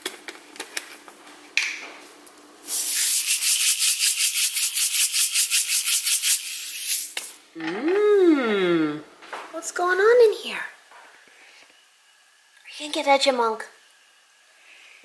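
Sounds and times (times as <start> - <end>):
sprinkles rattling in shaker: 2.7 - 7.2.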